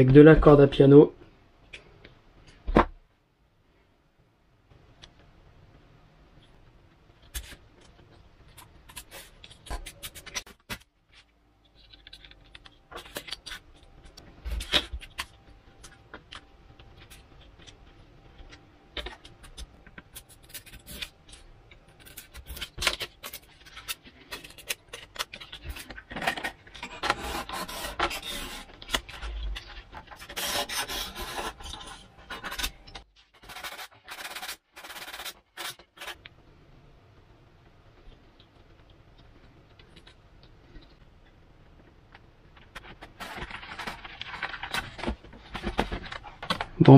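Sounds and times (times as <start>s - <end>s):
clicks and handling noises: 6.4s - 36.4s, 37.1s - 46.9s
rubbing and scraping: 20.0s - 36.2s.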